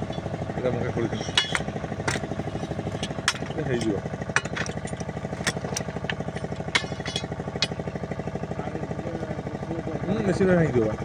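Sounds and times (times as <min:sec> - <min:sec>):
small engine running: 0:00.0 - 0:11.0
sharp metallic clinks: 0:02.9 - 0:07.9.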